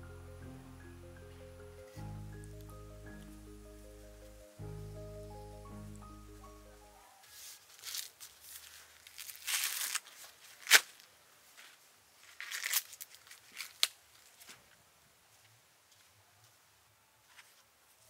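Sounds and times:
corn husks ripping: 0:07.4 - 0:11.1, 0:12.2 - 0:14.4.

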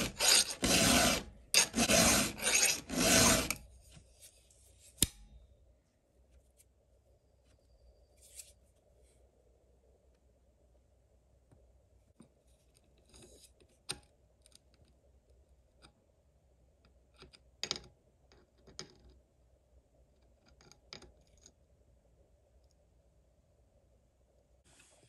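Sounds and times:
metal clicks and scrapes: 0:00.0 - 0:03.6.

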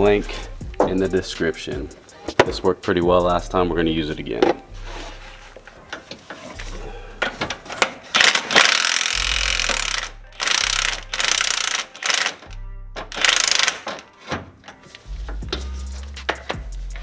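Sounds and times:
impact wrench hammering: 0:07.2 - 0:12.4, 0:13.0 - 0:14.0.

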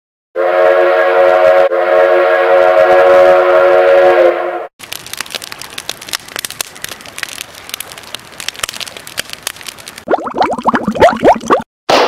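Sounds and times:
train horn chord: 0:00.4 - 0:04.7
campfire crackling: 0:04.8 - 0:10.1.

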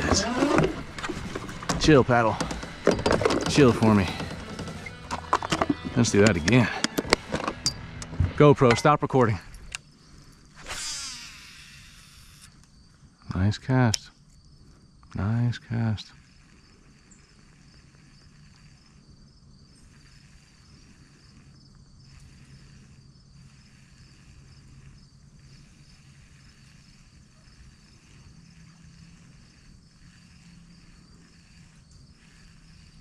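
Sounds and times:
insects chirping: 0:00.0 - 0:33.0.

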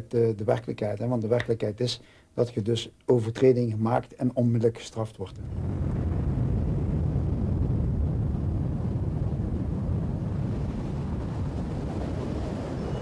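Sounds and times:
wind buffeting microphone: 0:05.4 - 0:13.0.

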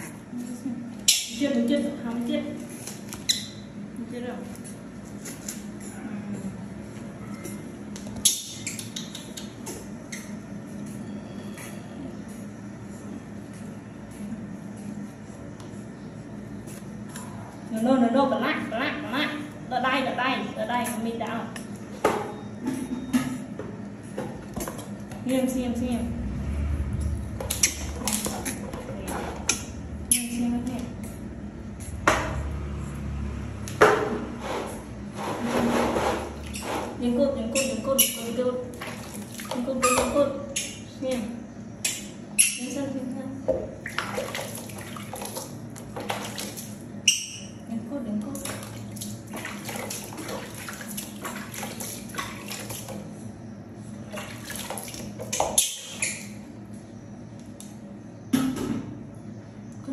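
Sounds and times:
water sloshing: 0:35.3 - 0:40.4, 0:43.6 - 0:47.3, 0:48.1 - 0:53.2, 0:54.0 - 0:56.3.

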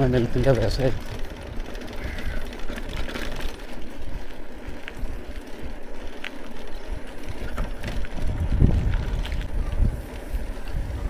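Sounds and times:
bike rattling over bumps: 0:00.0 - 0:11.0
bike tyre rumble on concrete: 0:00.0 - 0:11.0
wind on microphone: 0:07.0 - 0:11.0.

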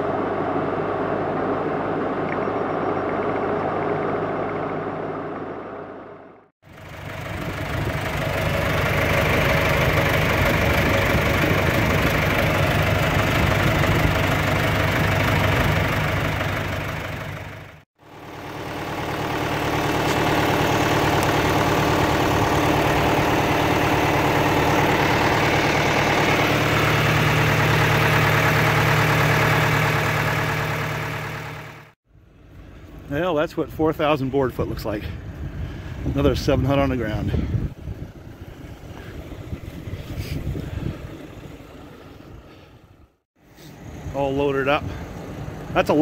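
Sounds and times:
diesel engine idling: 0:00.0 - 0:46.0.

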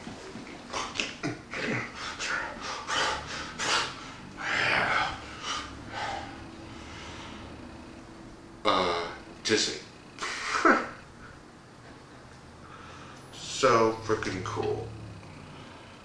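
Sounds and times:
person panting in sharp breaths: 0:04.9 - 0:07.5.

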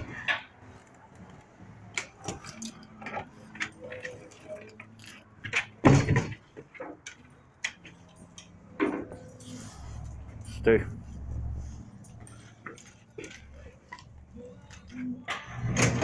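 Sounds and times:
metal chain collar jingling: 0:02.2 - 0:05.4, 0:08.0 - 0:13.7.

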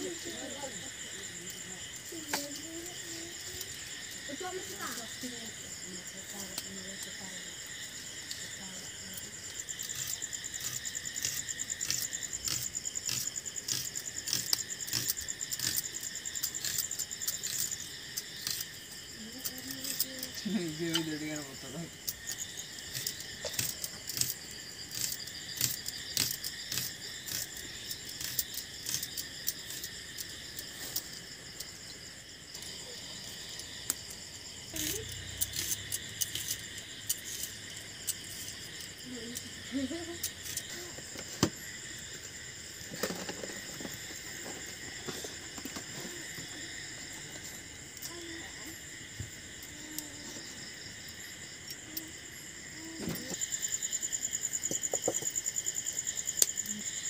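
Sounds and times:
crickets chirping: 0:00.0 - 0:57.0
garlic skins crackling: 0:08.4 - 0:31.7.

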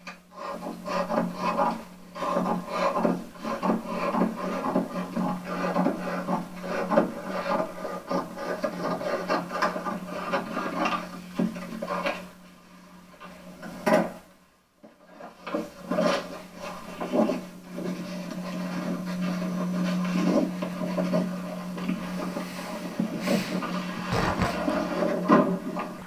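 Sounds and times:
paper rustling: 0:23.6 - 0:26.0.

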